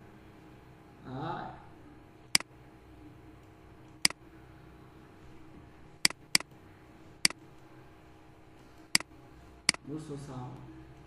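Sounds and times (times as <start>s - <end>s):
faint steady hum: 0.0s - 11.0s
computer mouse clicking: 6.1s - 6.5s.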